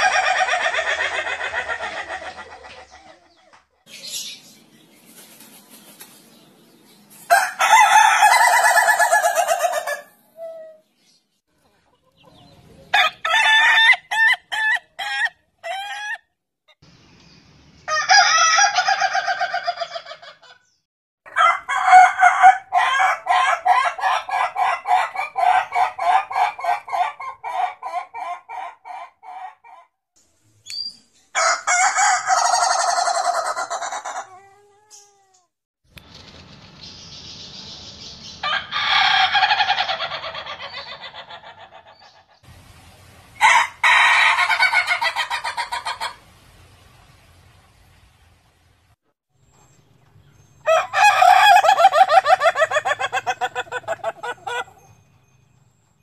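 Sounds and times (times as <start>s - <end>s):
roosters crowing: 0.0s - 3.1s, 7.3s - 10.1s, 12.9s - 16.2s, 17.9s - 20.5s, 21.3s - 29.8s, 31.4s - 35.1s, 38.4s - 42.2s, 43.4s - 46.2s, 50.6s - 55.0s.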